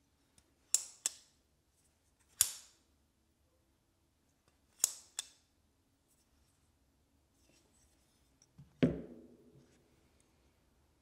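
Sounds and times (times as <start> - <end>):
folding knife snapping open and shut: 2.3 - 2.8, 4.8 - 5.4.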